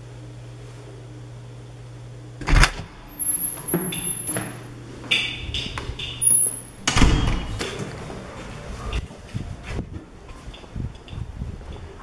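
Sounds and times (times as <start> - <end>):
thin high door squeak: 3.1 - 4.4, 6.0 - 7.6.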